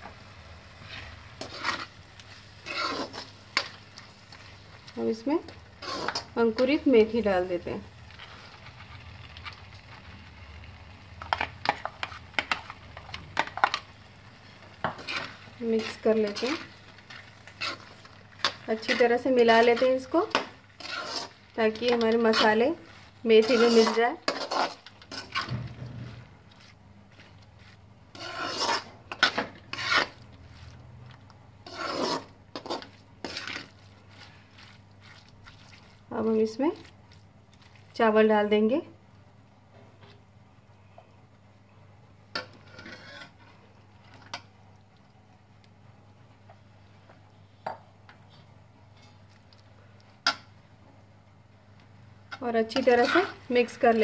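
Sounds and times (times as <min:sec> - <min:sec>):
faint sizzle: 0:00.0 - 0:54.0
spatula scraping a pan: 0:00.8 - 0:04.6, 0:05.4 - 0:06.8, 0:14.8 - 0:30.8, 0:31.6 - 0:36.0, 0:42.4 - 0:43.6, 0:52.6 - 0:54.0.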